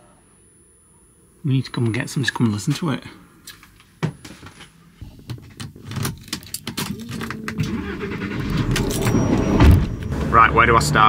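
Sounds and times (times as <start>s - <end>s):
keys jangling in hand: 6.0s - 7.5s.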